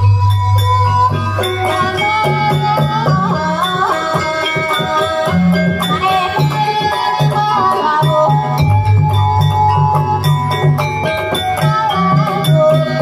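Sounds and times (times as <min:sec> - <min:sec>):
drum strokes: 0:00.0 - 0:13.0
gamelan melody: 0:00.0 - 0:13.0
pulsing low part: 0:08.3 - 0:12.6.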